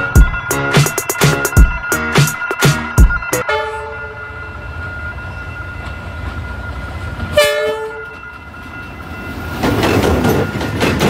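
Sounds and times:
thin high tone: 0.0 - 9.5
passing train rumble: 0.0 - 11.0
train horn blast: 3.4 - 4.3, 7.4 - 8.2.

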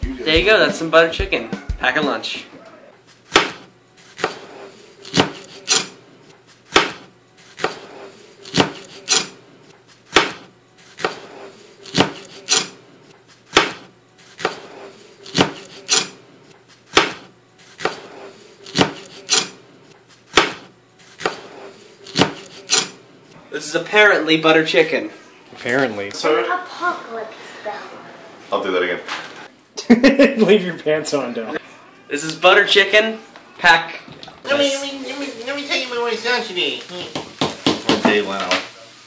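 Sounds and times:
knife chopping on cutting board: 3.3 - 6.0, 6.7 - 9.4, 10.1 - 12.8, 13.5 - 16.2, 16.9 - 19.6, 20.3 - 23.0, 37.1 - 38.2.

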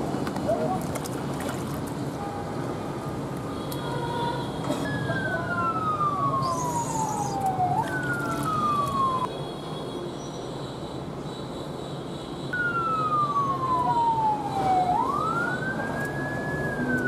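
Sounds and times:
water sloshing and splashing: 0.2 - 2.2, 7.4 - 9.3
descending whistling tones: 4.9 - 8.6.

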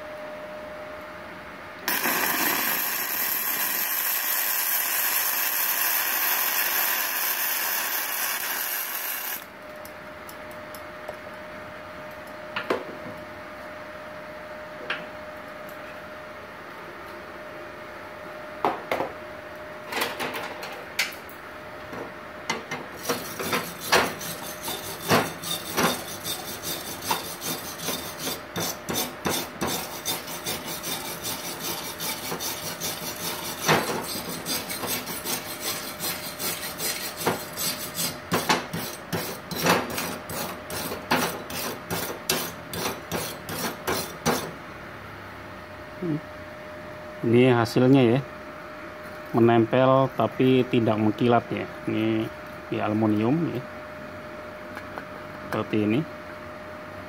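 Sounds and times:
wire brush scrubbing metal: 23.0 - 44.5.

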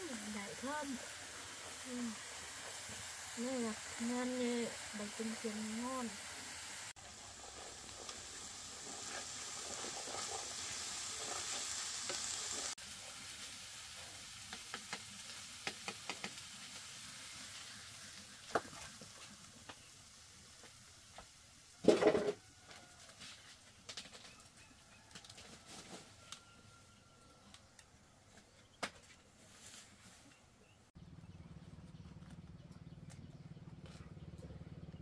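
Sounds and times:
food sizzling in frying pan: 0.0 - 23.8.

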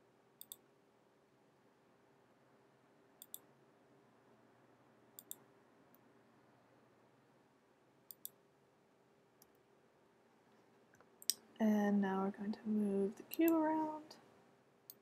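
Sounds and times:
faint steady hum: 0.0 - 15.0
computer mouse clicks: 0.4 - 0.6, 3.2 - 3.5, 5.2 - 6.0, 8.1 - 8.4.

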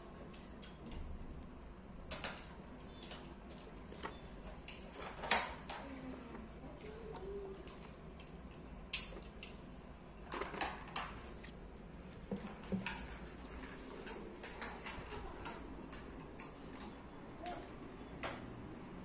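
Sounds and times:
faint steady hum: 0.0 - 19.0
objects and paper handled: 3.1 - 9.4, 10.3 - 17.7.

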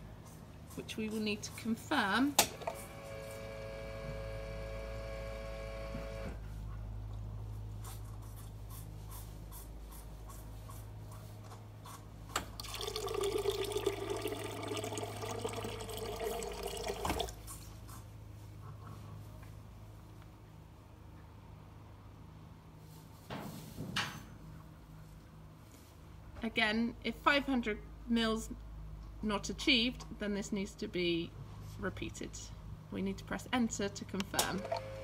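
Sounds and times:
steady machine hum: 0.0 - 6.4
water rushing into flask: 12.6 - 17.4.

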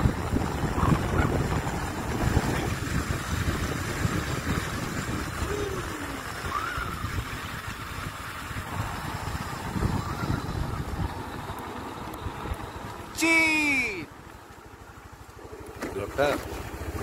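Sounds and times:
wind rushing over microphone: 0.0 - 11.6
motorcycle engine rumble: 0.0 - 17.0.

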